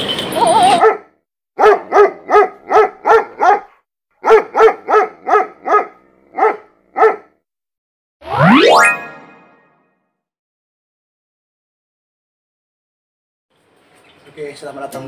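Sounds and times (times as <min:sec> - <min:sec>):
dog barking: 0:00.7 - 0:07.4.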